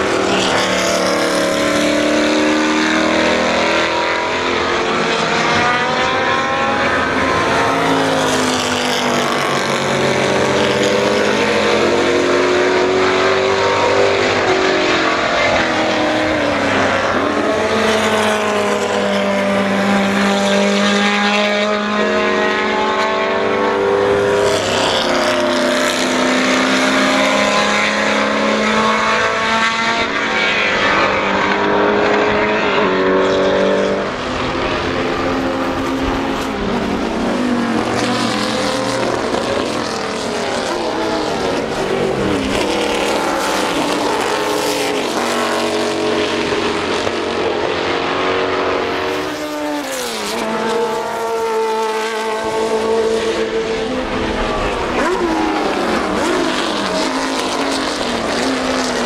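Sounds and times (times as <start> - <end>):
race car engines revving: 0.0 - 59.0.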